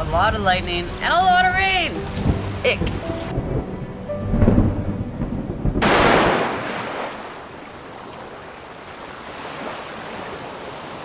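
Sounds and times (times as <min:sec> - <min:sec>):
low rumble of thunder: 0:02.2 - 0:07.0
small waves washing on beach: 0:06.0 - 0:11.0.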